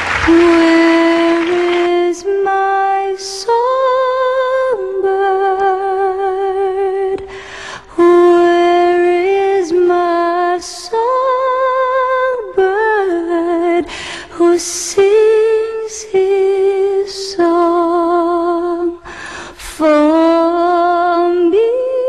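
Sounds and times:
woman singing wordless notes: 0:00.0 - 0:22.0
singer breathing: 0:07.2 - 0:07.9, 0:13.9 - 0:14.3, 0:19.0 - 0:19.6.

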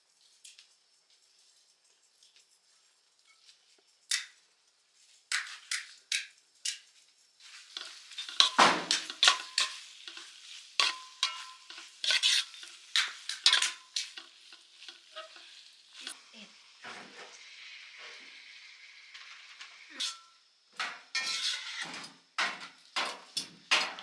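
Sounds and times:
food sizzling in oil: 0:01.8 - 0:22.4
metal spoon scraping metal pan: 0:07.5 - 0:16.2, 0:19.9 - 0:20.4, 0:21.2 - 0:22.0.

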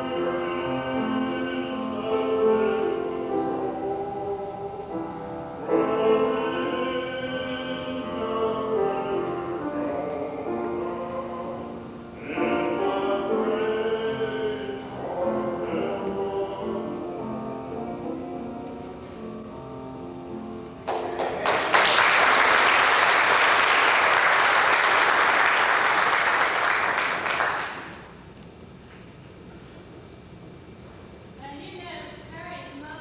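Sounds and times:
singing: 0:00.0 - 0:19.6
congregation applauding: 0:20.8 - 0:28.2.

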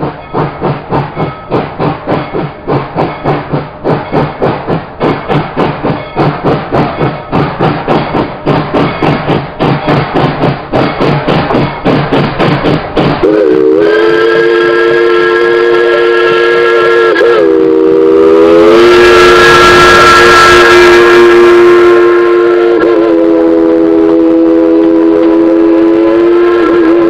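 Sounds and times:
steam locomotive chuffing: 0:00.0 - 0:27.0
steam whistle chord: 0:13.2 - 0:27.0.

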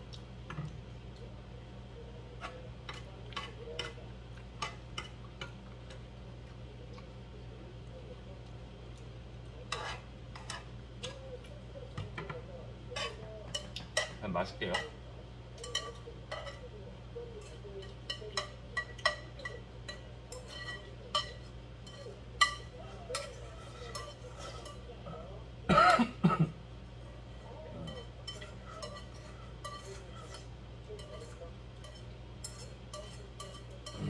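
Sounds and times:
person coughing: 0:25.7 - 0:26.6.

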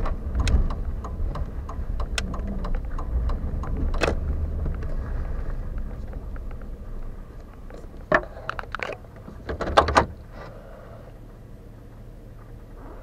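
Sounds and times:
sharp clicks and knocks: 0:00.0 - 0:05.0, 0:05.7 - 0:06.8
truck engine in cab: 0:00.0 - 0:13.0.

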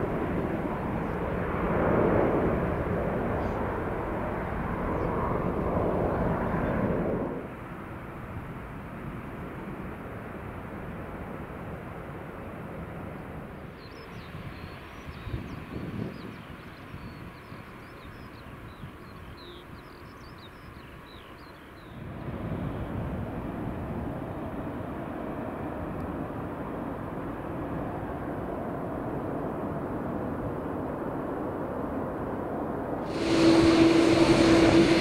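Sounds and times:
jet engine rumble: 0:00.0 - 0:19.0, 0:22.0 - 0:35.0
loud sound with steady hum: 0:33.0 - 0:35.0.

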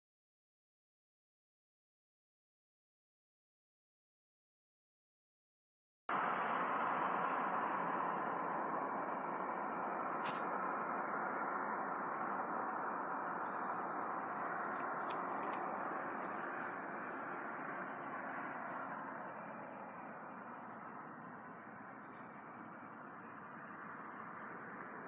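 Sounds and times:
crickets and insects chirping: 0:06.1 - 0:25.0
faint ticks: 0:14.8 - 0:16.4.

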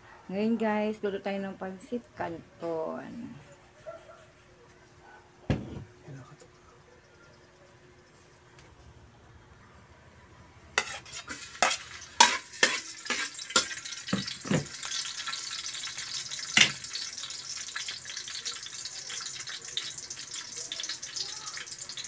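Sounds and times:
spatula clattering on pan: 0:10.8 - 0:18.2
garlic sizzling in oil: 0:10.8 - 0:22.0.

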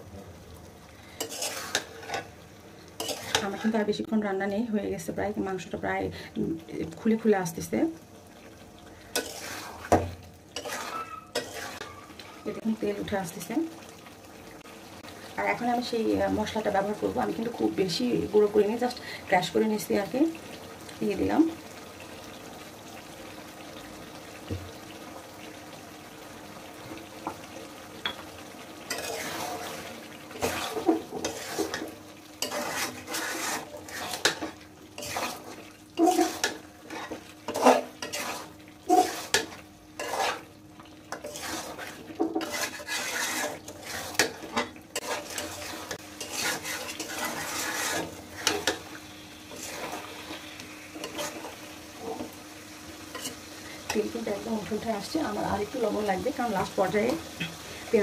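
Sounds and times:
faint frying sizzle: 0:00.0 - 0:58.0
metal spoon scraping a pan: 0:01.2 - 0:02.3, 0:03.0 - 0:03.8, 0:09.1 - 0:12.4, 0:28.9 - 0:40.5, 0:41.1 - 0:48.9, 0:49.5 - 0:52.3, 0:53.1 - 0:54.3.

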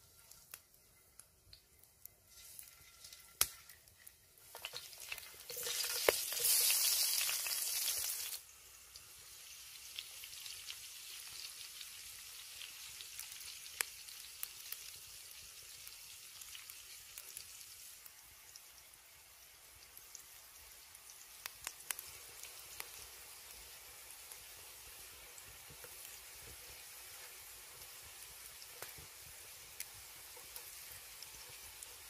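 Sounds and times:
potatoes sizzling in a pan: 0:00.0 - 0:32.0
crackling pops: 0:21.3 - 0:23.1, 0:28.6 - 0:31.6.

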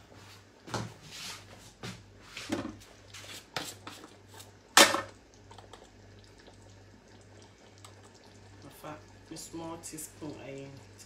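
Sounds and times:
kitchen knocks and rustles: 0:00.7 - 0:02.9.

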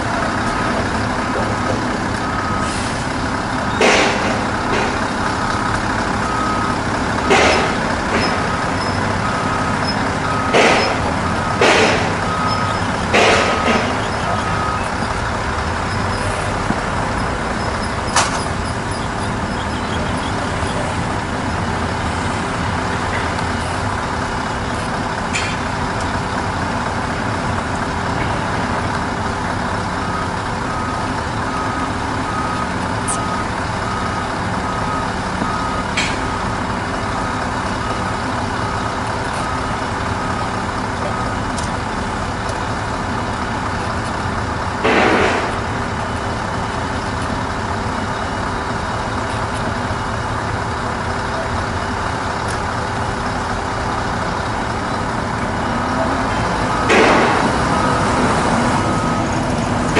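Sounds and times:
diesel truck engines idling: 0:00.0 - 0:59.9
air brake hisses: 0:02.6 - 0:03.1
faint high beep: 0:32.3 - 0:33.4.

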